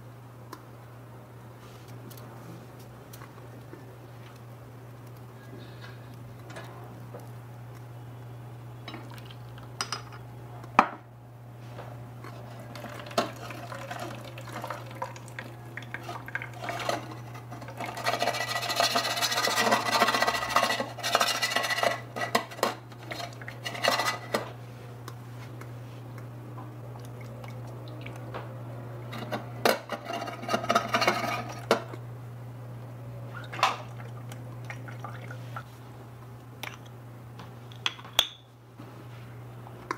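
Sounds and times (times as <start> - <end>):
steady low hum: 0.0 - 39.9
colander clattering: 12.7 - 15.4, 16.0 - 24.5
water pouring into colander: 12.7 - 20.0.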